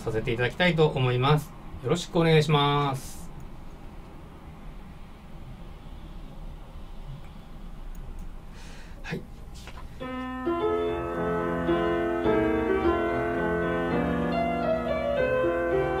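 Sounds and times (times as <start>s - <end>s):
piano playing: 10.0s - 16.0s.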